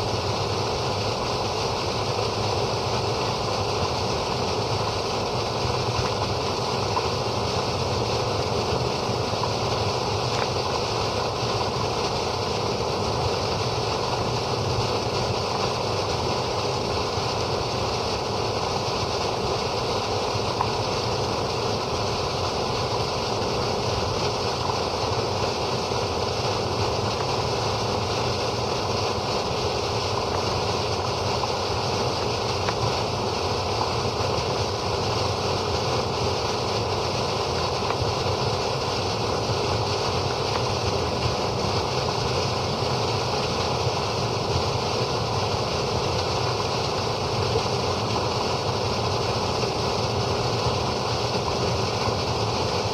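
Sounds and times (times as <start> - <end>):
water gushing from pipe: 0.0 - 52.9.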